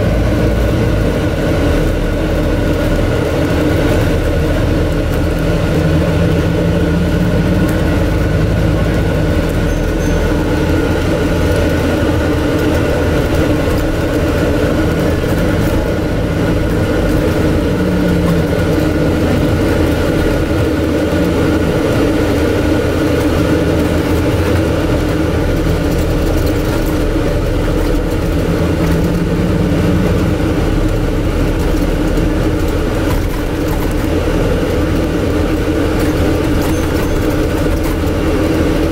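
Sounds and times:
air-conditioning rush and hum: 0:00.0 - 0:38.9
bus diesel engine running low: 0:00.0 - 0:38.9.

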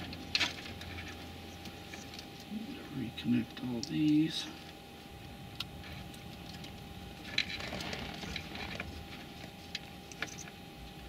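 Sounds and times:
wiring harness rustling: 0:05.8 - 0:10.5.

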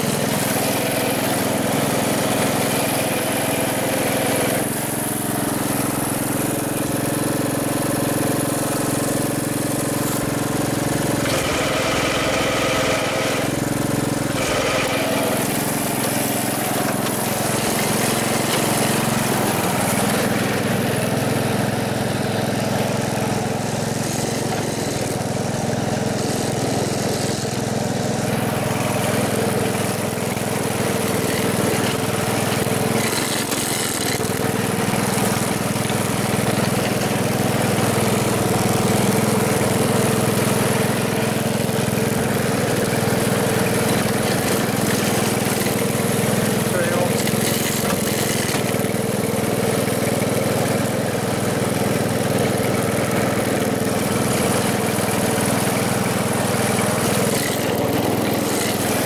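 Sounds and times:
car engine idling: 0:33.9 - 0:47.4.

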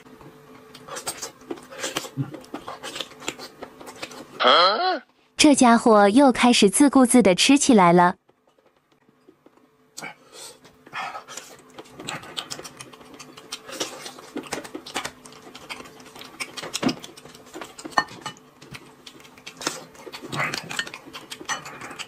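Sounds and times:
man chewing and smacking lips: 0:00.2 - 0:04.4, 0:08.4 - 0:22.0.

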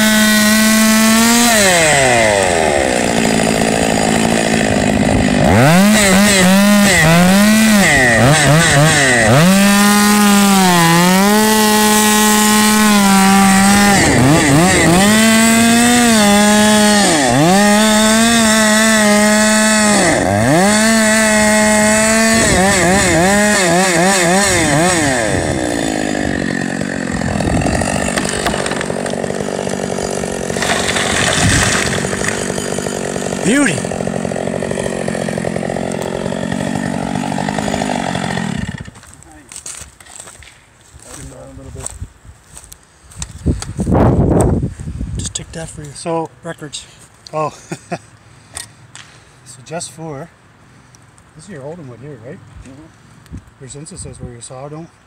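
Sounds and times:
chainsaw cutting wood: 0:00.0 - 0:40.6.

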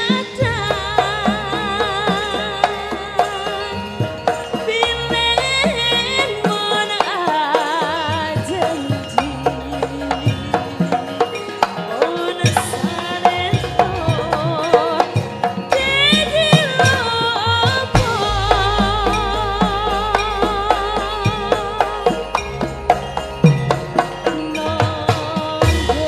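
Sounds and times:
woman singing with vibrato: 0:00.0 - 0:22.9, 0:24.2 - 0:26.0
gamelan music: 0:00.0 - 0:26.0
hand drum strokes: 0:00.0 - 0:26.0.

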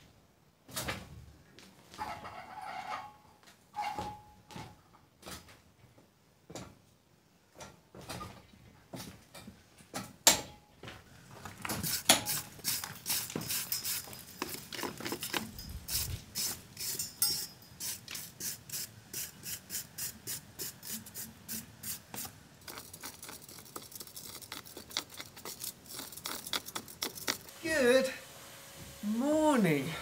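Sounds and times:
wire brush scraping mortar: 0:11.7 - 0:28.1.

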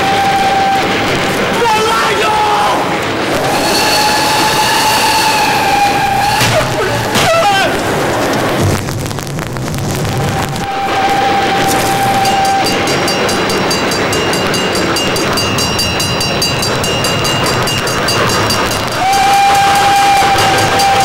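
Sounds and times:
train wheels clattering on rails: 0:00.0 - 0:09.6, 0:10.3 - 0:21.0
noisy rumble: 0:00.0 - 0:21.0
steady held tone: 0:10.2 - 0:21.0.

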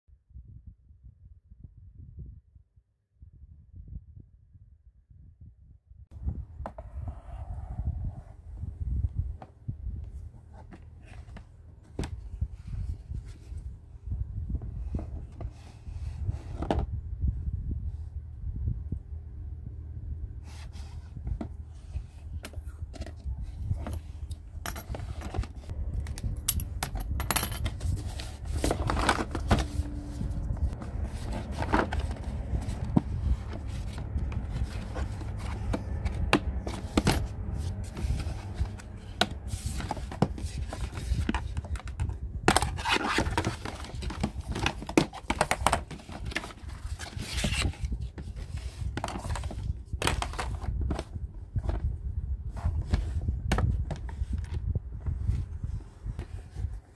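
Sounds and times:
low steady hum: 0:06.2 - 0:56.9
packaging scraping and tearing: 0:42.5 - 0:49.6.

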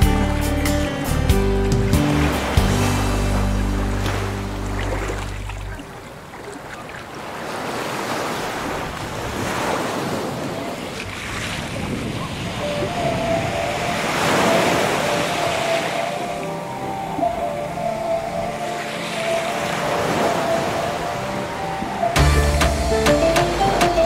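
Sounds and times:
sea water washing and splashing: 0:01.7 - 0:24.0
wind on microphone: 0:08.6 - 0:15.2.

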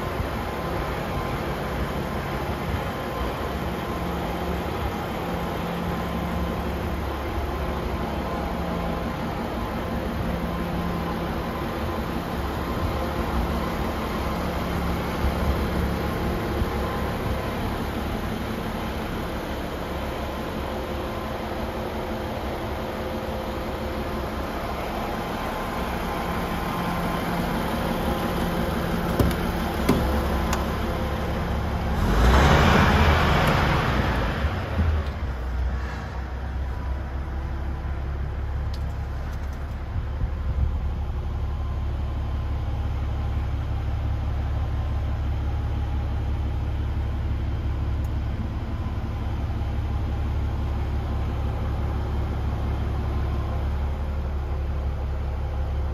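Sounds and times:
truck diesel engine idling: 0:00.0 - 0:55.9
short knocks: 0:29.0 - 0:30.7.

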